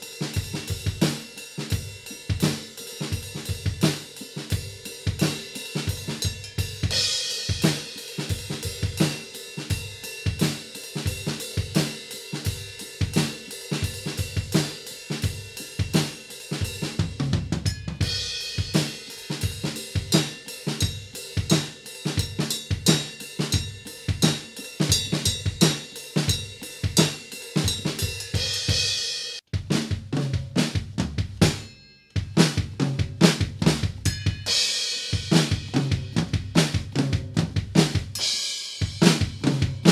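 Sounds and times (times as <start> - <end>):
ringing cymbals: 0.0 - 17.0, 17.6 - 29.4, 31.5 - 32.6, 34.1 - 36.0
drum kit playing: 0.0 - 39.9.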